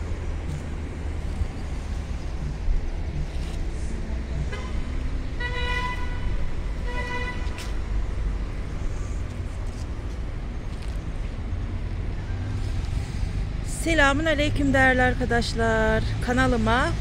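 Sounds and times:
low traffic rumble: 0.0 - 17.0
vehicle horn tooting: 5.4 - 7.6.

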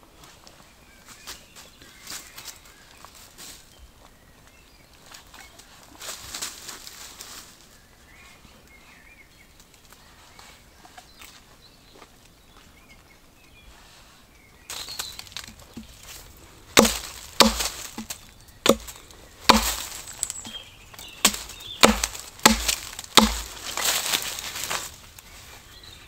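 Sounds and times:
rustling: 14.7 - 26.0
axe chopping wood: 15.2 - 16.0, 16.7 - 20.6, 21.2 - 24.2.

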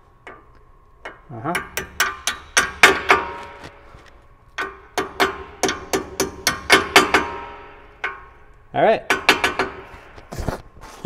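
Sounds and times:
hammer tapping metal punch: 0.2 - 3.8, 4.6 - 10.3.

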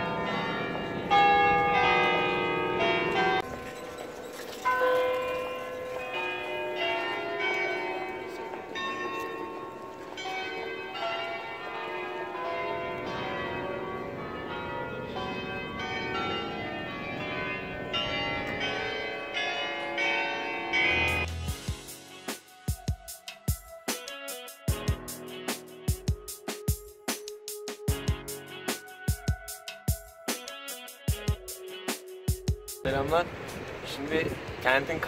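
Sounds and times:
tuned bells ringing a melody: 0.0 - 21.9.

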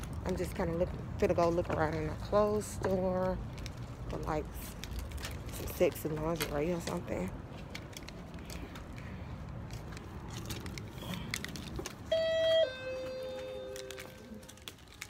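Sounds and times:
phone rustling while walking: 0.0 - 15.0
two-note electronic chime: 12.1 - 14.0.

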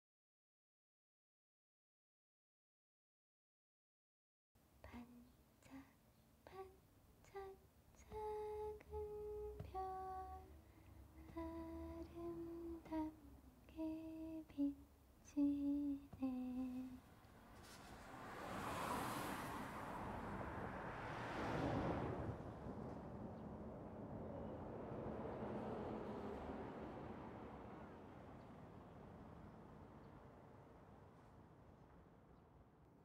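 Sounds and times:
person humming a lullaby: 4.8 - 17.0
soft rushing noise: 16.2 - 31.8.

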